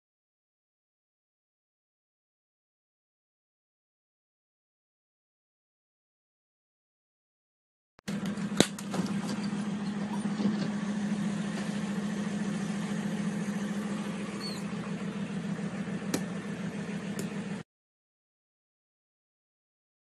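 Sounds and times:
van engine humming: 8.1 - 17.6.

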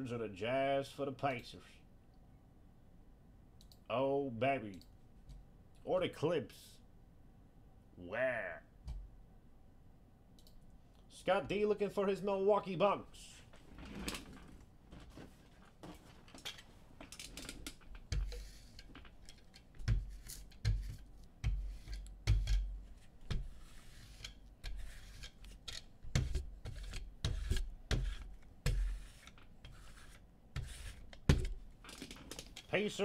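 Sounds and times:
rubbing and scraping: 17.5 - 32.7.

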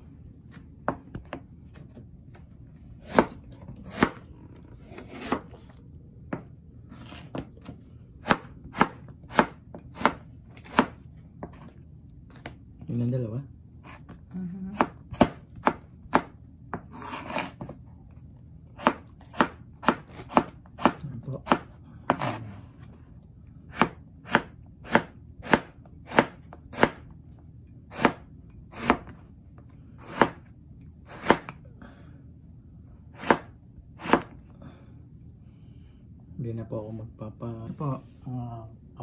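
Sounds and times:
knife chopping on cutting board: 3.0 - 4.2, 4.9 - 5.6, 6.3 - 11.7, 14.8 - 17.8, 18.8 - 22.6, 23.7 - 27.1, 27.9 - 29.2, 30.0 - 30.5, 31.1 - 31.6, 33.2 - 34.4.

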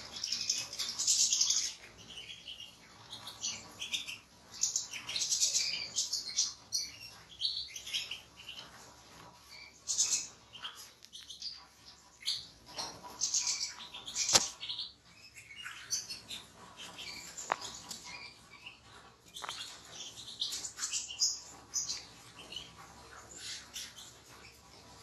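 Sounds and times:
birds twittering and chirping: 0.0 - 25.0
sharp click: 14.2 - 14.6.

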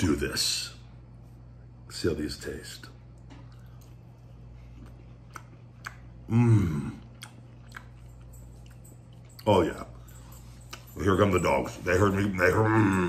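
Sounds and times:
man chewing: 3.2 - 9.5
man grunting mmm: 6.3 - 7.1.

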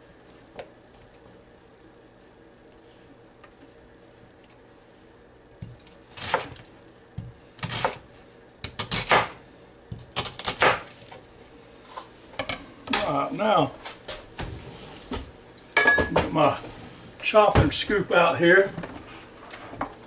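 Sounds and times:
knife cutting onion on board: 6.1 - 6.6, 7.2 - 8.0, 8.6 - 10.9.

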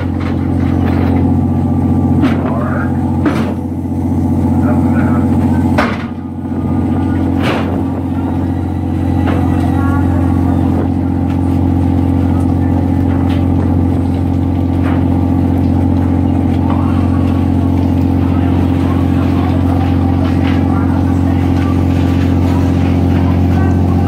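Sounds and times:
boat engine drone: 0.0 - 24.0.

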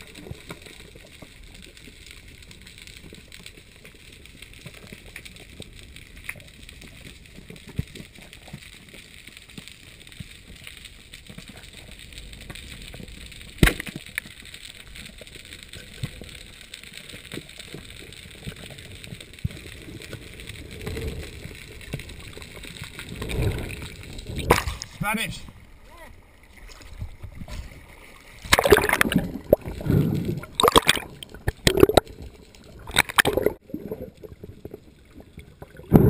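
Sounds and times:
small clicks and crackles: 0.0 - 36.0
low rushing of water: 9.2 - 36.0
sharp crack: 13.4 - 14.6, 23.0 - 25.3, 28.4 - 33.6.

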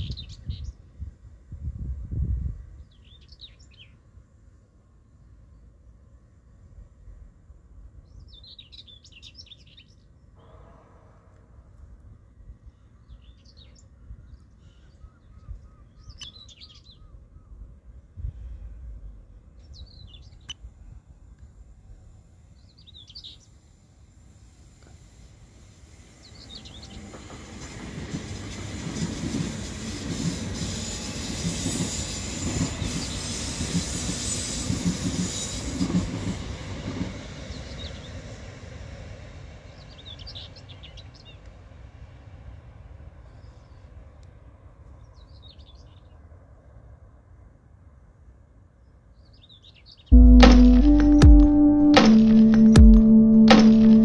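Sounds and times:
train wheels on rails: 23.7 - 43.0.

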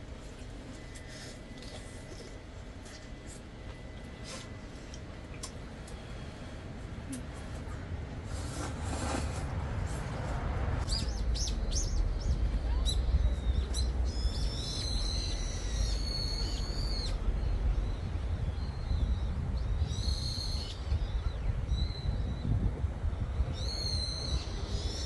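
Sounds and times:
low steady rumble: 0.0 - 24.9
birds singing: 10.8 - 25.0.

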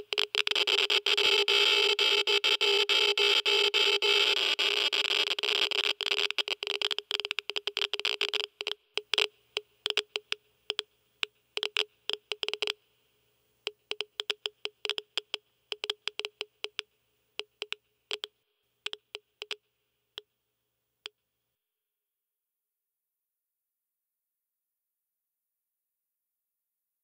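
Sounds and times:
geiger counter clicking: 5.2 - 12.8, 13.6 - 19.6.

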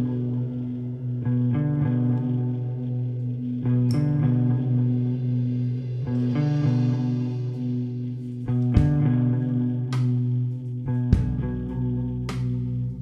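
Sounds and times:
bass notes: 0.0 - 13.0
electric guitar chords: 0.0 - 13.0
sharp drum hits: 8.8 - 9.1.

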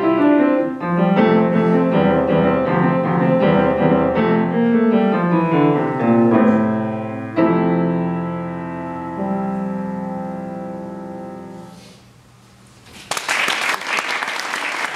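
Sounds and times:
grand piano chords: 0.0 - 11.9
audience applause: 13.1 - 14.9.

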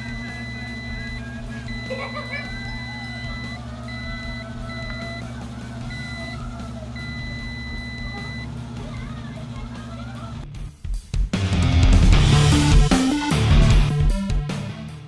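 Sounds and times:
multimeter continuity beep: 0.0 - 8.6
steady low hum: 0.0 - 10.8.

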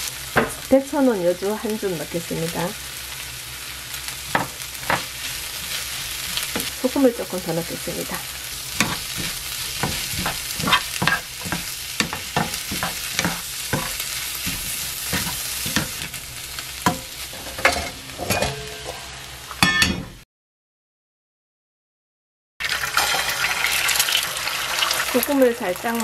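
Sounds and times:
food sizzling in frying pan: 0.0 - 19.6, 22.6 - 26.0
wooden spatula scraping pan: 4.3 - 16.2.

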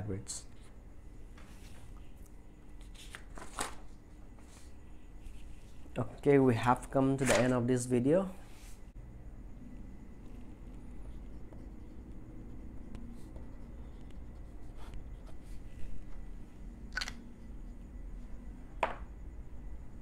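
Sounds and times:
low steady hum: 0.0 - 20.0
pen nib scratching on paper: 10.2 - 15.6.

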